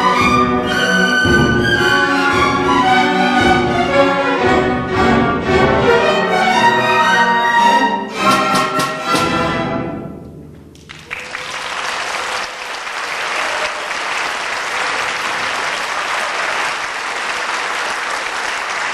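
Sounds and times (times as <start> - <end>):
audience applause: 10.7 - 18.9.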